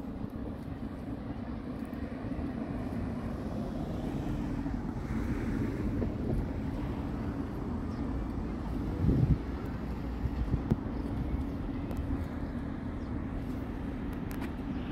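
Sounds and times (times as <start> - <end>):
road traffic: 0.0 - 14.9
wind buffeting microphone: 4.0 - 14.4.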